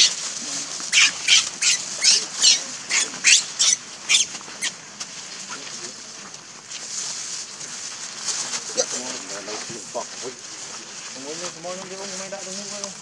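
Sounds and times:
baby monkey squealing: 0.8s - 4.8s.

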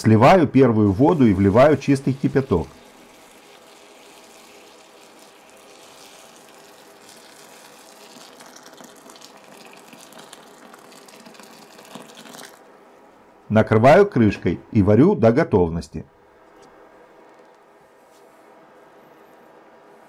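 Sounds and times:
water pouring onto beans: 0.9s - 12.7s.

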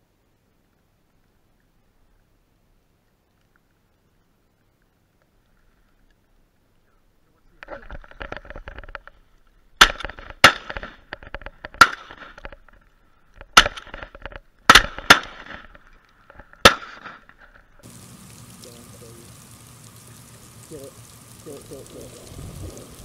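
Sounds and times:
steady hiss of rain: 0.0s - 23.0s
shotgun shots: 9.8s - 11.1s, 11.7s - 12.4s, 13.6s - 14.1s, 14.7s - 15.7s, 16.6s - 17.3s.

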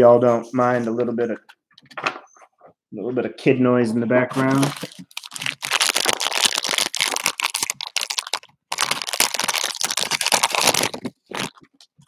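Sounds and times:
foil wrapper crinkling and tearing: 4.3s - 11.9s.

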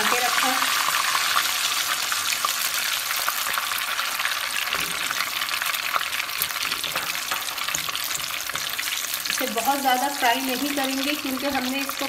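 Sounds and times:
paste sizzling in hot oil: 0.0s - 12.0s
spatula stirring and scraping: 4.5s - 10.2s.

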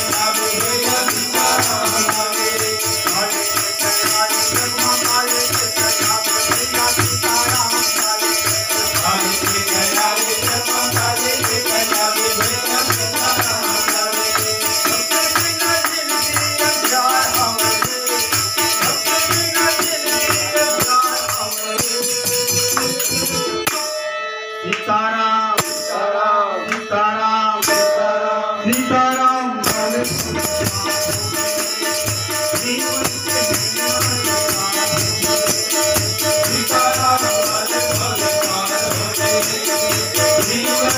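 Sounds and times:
jingling hand cymbals: 0.0s - 24.3s, 27.6s - 40.9s
harmonium: 0.0s - 40.9s
person singing: 0.0s - 40.9s
hand drum: 29.6s - 40.9s.

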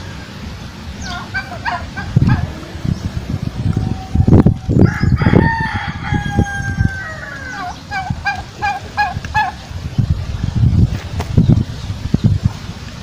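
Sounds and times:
rooster crowing: 1.6s - 7.8s.

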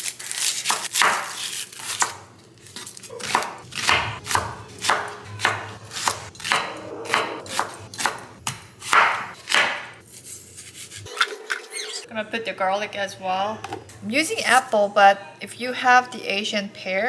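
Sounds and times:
knife chopping on wooden board: 3.2s - 10.0s.

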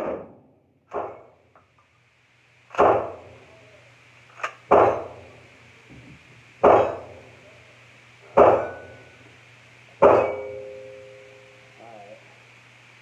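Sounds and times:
loud gunshots echoing: 2.7s - 3.3s, 4.7s - 5.3s
faint gunshot crack: 2.8s - 3.3s.

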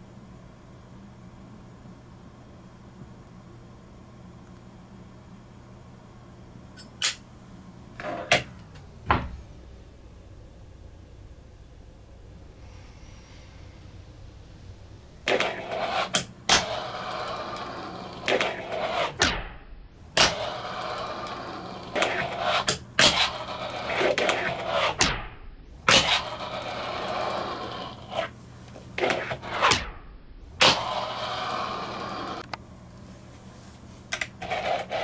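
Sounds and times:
fingerboard wheels rolling: 8.0s - 8.4s, 15.2s - 19.2s, 20.2s - 25.0s, 25.9s - 29.8s, 30.6s - 32.5s, 34.1s - 35.0s.

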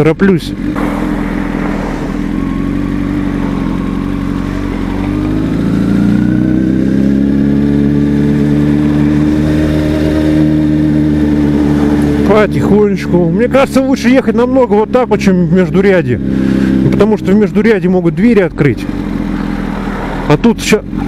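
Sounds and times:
motorcycle engine at low revs: 0.0s - 21.0s.

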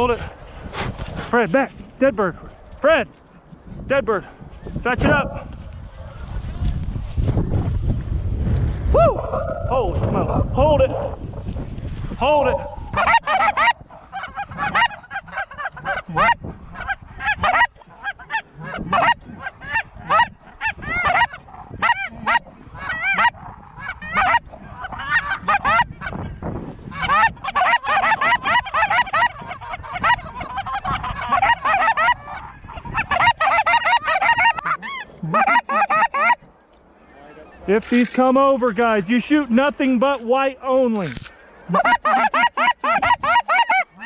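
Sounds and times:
geese honking: 12.6s - 26.3s, 26.9s - 40.0s, 41.0s - 44.0s.

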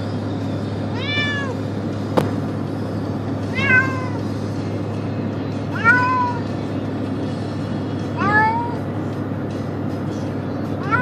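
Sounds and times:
car low hum: 0.0s - 11.0s
cat meowing: 0.9s - 1.6s, 3.5s - 4.2s, 5.7s - 6.4s, 8.2s - 8.8s, 10.8s - 11.0s.

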